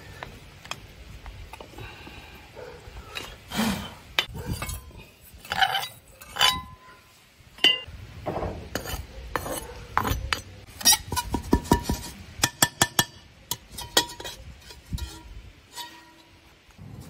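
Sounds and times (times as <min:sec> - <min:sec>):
metal trowel scraping a wok: 0:04.2 - 0:07.9, 0:08.7 - 0:17.0.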